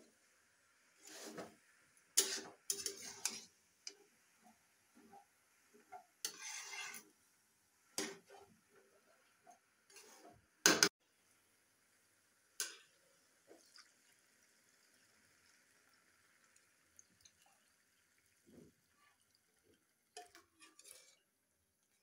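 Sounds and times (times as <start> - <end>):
spatula scraping metal pan: 1.0 - 1.6, 2.2 - 4.1, 5.0 - 7.2, 8.0 - 8.6, 9.9 - 10.4, 20.2 - 21.3.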